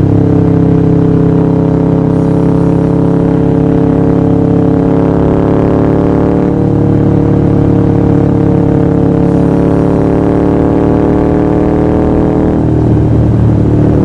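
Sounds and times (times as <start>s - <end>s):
motorcycle engine cruising: 0.0s - 14.0s.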